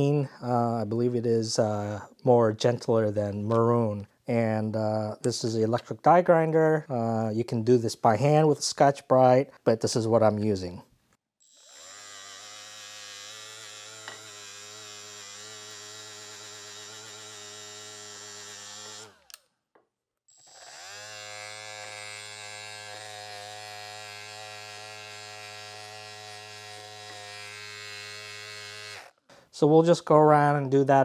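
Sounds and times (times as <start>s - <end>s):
electric die grinder polishing metal: 11.5s - 19.3s, 20.4s - 29.1s.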